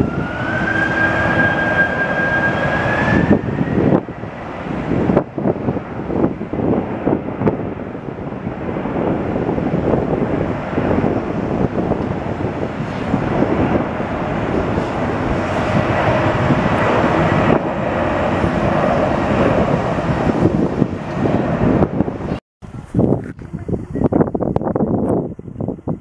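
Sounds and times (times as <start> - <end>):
jet engines rushing: 0.0 - 26.0.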